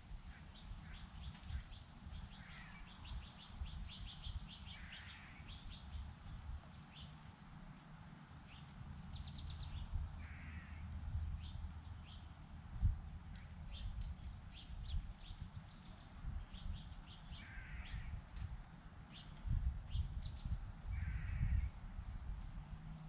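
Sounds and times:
songbirds chirping: 0.0 - 23.0
harsh raspy bird calls: 10.2 - 10.8.

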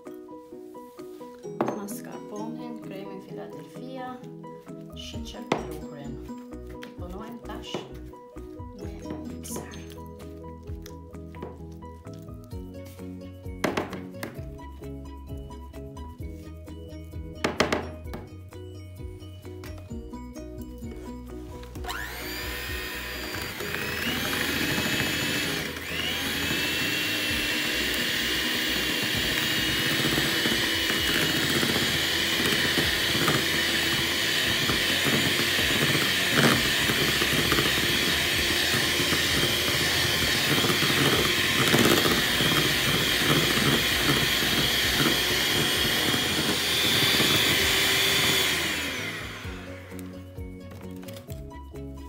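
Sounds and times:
electric hand mixer whining: 19.9 - 50.6.

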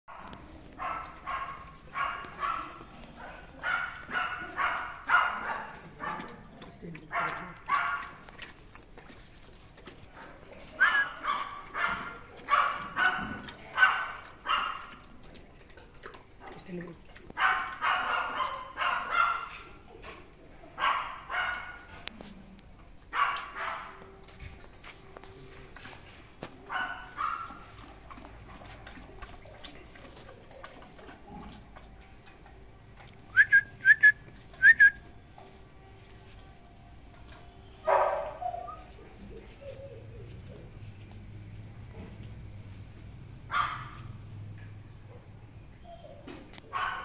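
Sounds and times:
dog barking: 0.1 - 6.4, 7.1 - 8.2, 10.2 - 15.0, 17.4 - 19.6, 20.8 - 21.9, 23.1 - 24.1, 26.7 - 27.8, 37.8 - 38.8, 43.5 - 44.1, 46.7 - 47.0
puppy lapping water from bowl: 0.1 - 45.7.

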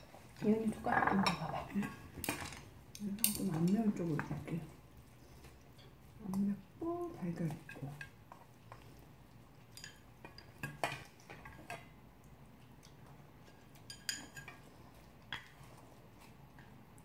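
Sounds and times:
utensils clinking on metal bowls: 0.4 - 4.6, 9.7 - 11.9, 13.5 - 14.8.

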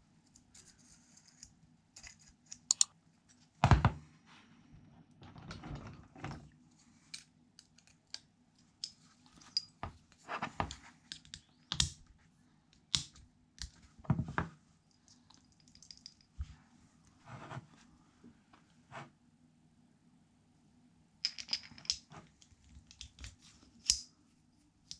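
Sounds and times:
metal parts clicking and scraping: 1.1 - 2.9.

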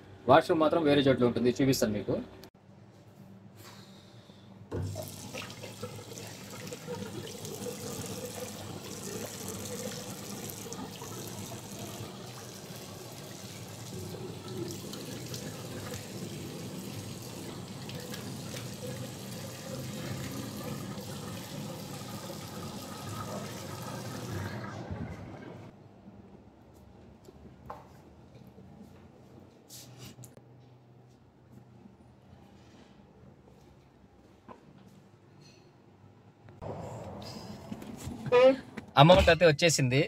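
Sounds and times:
tap water running into basin: 4.7 - 24.8.

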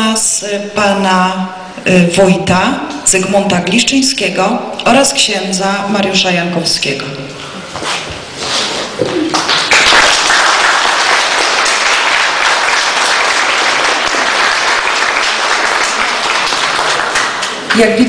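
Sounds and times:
audience clapping: 9.2 - 17.8.

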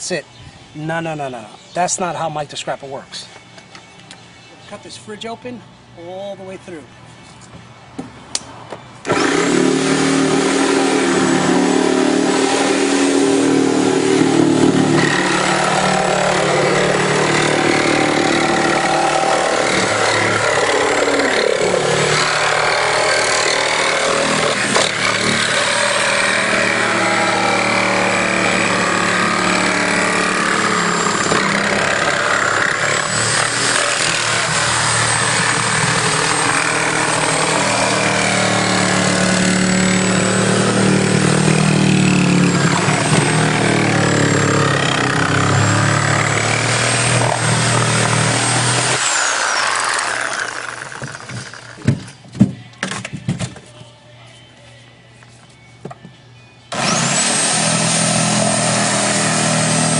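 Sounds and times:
power tool cutting sheet metal: 9.1 - 52.0, 56.7 - 59.9.

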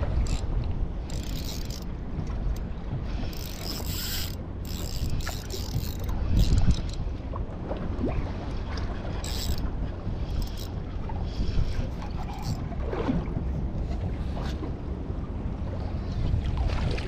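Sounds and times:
water noise: 0.0 - 17.0
wind: 0.0 - 17.0
fishing reel gears whirring: 0.2 - 7.1, 9.1 - 12.6.

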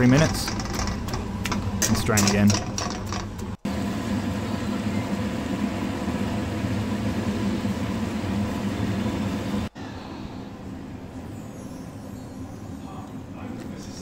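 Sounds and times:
water boiling in a pot: 0.0 - 9.7.

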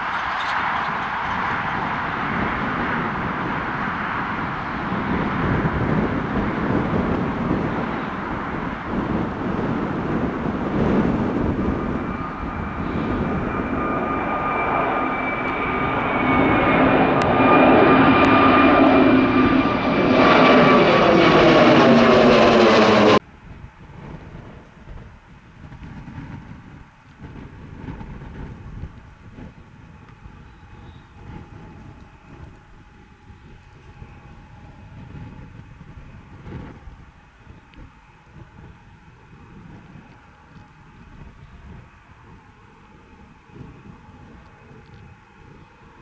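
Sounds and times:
high engine whine: 0.0 - 24.7
jet engine noise: 0.0 - 46.0.

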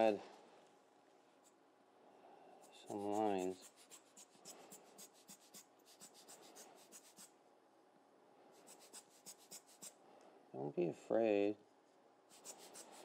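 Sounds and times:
fine brush stroking on paper: 12.3 - 13.0.

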